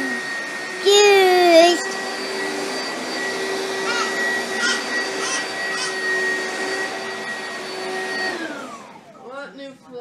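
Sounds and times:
appliance motor whining hum: 0.0s - 9.3s.

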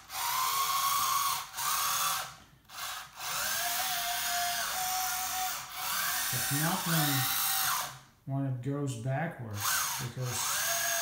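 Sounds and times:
electric motors and gearboxes whining: 2.8s - 7.9s, 9.6s - 11.0s.

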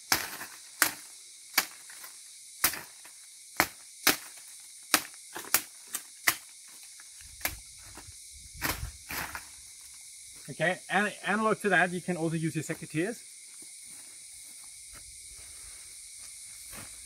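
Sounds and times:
machete chopping branches: 0.0s - 6.5s, 8.6s - 9.4s.

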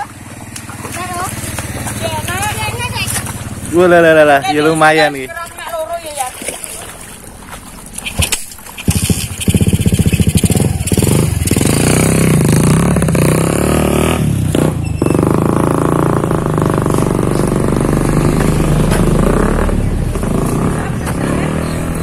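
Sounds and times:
small engine running: 0.0s - 5.1s, 8.1s - 13.7s.

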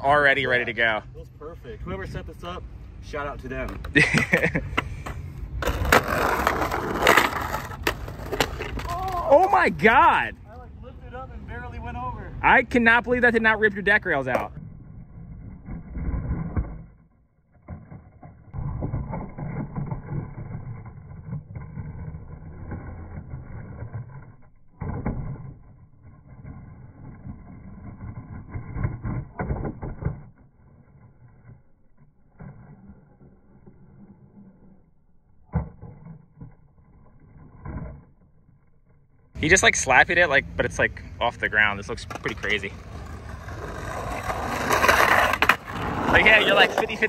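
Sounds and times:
skateboard wheels rolling on pavement: 0.0s - 47.0s
skateboard grinding on concrete curb: 2.1s - 10.3s, 17.6s - 38.2s, 39.4s - 47.0s.

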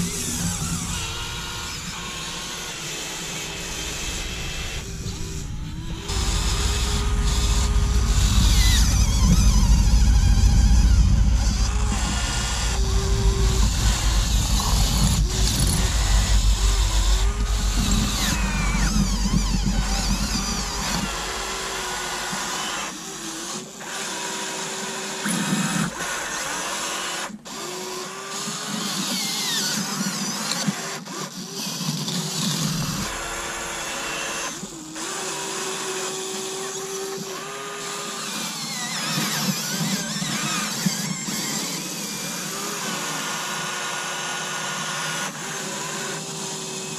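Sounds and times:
low rumble: 0.0s - 22.6s
small electric motors whining: 0.0s - 46.9s.

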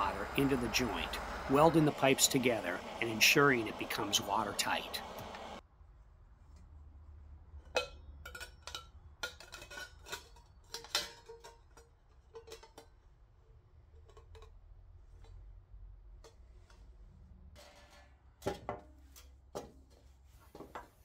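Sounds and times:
copper tube clinking on metal: 7.7s - 13.0s.

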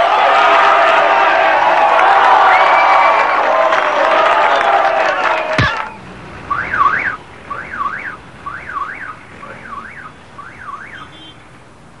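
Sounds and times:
high warbling alarm tone: 5.6s - 11.0s.

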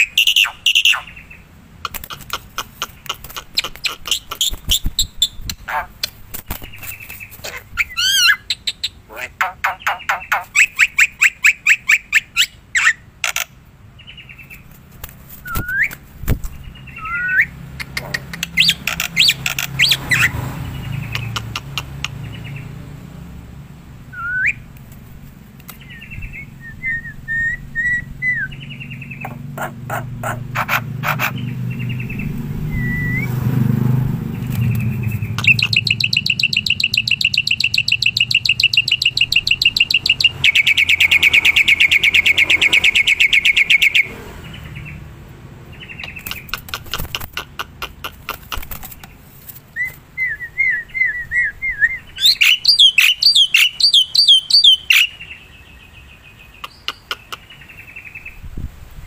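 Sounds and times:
rattling bird trill: 0.0s - 5.8s, 34.6s - 44.1s
starling singing: 0.0s - 14.6s, 16.6s - 22.8s, 25.8s - 33.4s, 34.4s - 45.0s, 45.7s - 58.3s.

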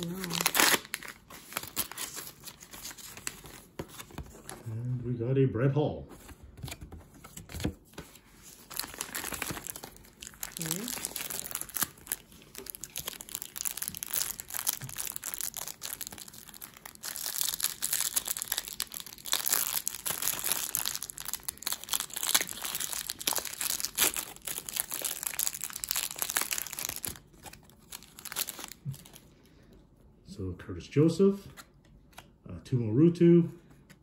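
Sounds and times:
plastic wrapper crinkling: 0.0s - 4.6s, 8.3s - 29.3s.

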